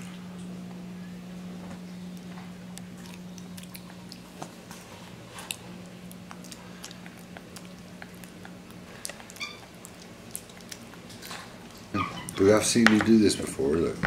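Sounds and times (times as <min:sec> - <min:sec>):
steady low hum: 0:00.0 - 0:14.0
monkey chewing and smacking: 0:02.2 - 0:12.4.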